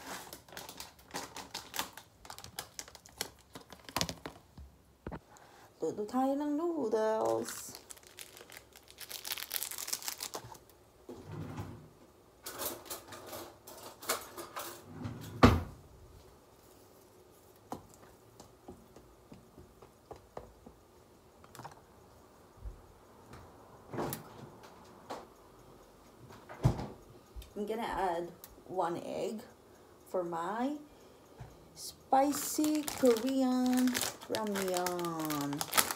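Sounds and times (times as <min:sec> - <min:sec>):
plastic sachet crinkling and tearing: 0:00.0 - 0:04.4, 0:07.2 - 0:10.7, 0:32.3 - 0:35.9.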